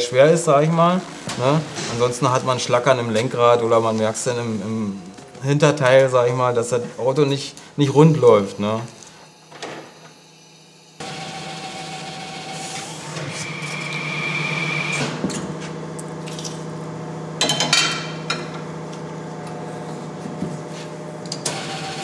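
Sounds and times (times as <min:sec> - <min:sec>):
tyre changer motor humming: 0:09.4 - 0:17.4, 0:18.6 - 0:22.0.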